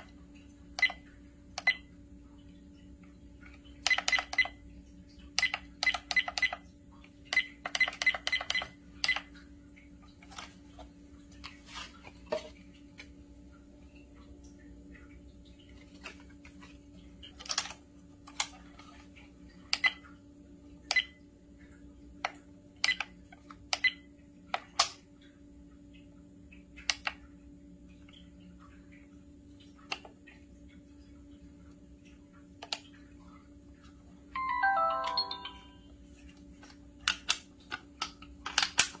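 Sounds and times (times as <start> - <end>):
descending electronic jingle: 34.4 - 35.8
plastic clicks: 36.6 - 39.0.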